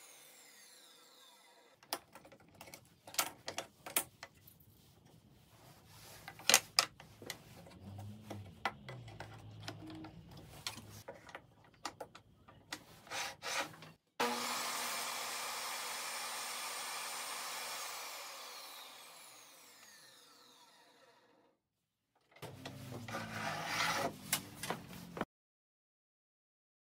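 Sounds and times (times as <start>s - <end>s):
table saw spinning down: 0.0s - 1.7s, 14.2s - 21.4s
table saw running: 0.0s - 1.8s, 14.2s - 21.4s.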